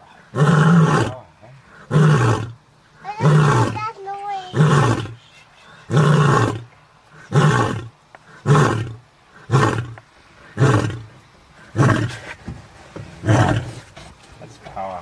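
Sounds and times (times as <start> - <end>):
lion roaring: 5.9 - 10.0, 13.2 - 13.8.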